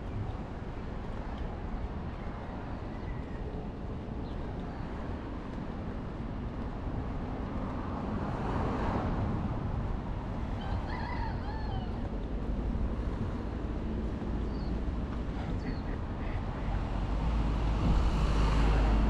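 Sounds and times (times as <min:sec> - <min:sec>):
road traffic rumble: 0:00.0 - 0:19.0
vehicle passing: 0:16.2 - 0:19.0.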